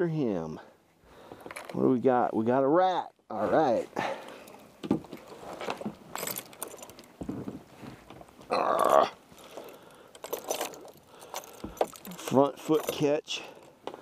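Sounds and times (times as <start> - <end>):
trap chain clinking: 6.1 - 7.1, 9.4 - 13.8.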